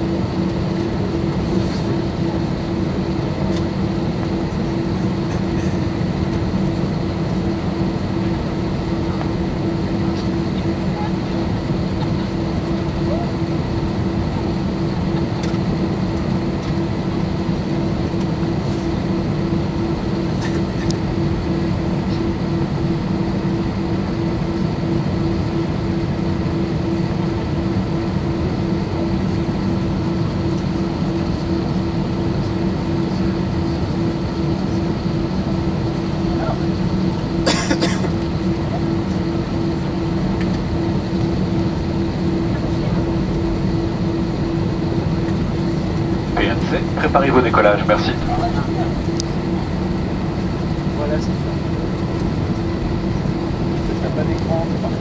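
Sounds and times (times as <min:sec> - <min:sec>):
jet engines droning: 0:00.0 - 0:55.0
faint high whine: 0:18.7 - 0:55.0.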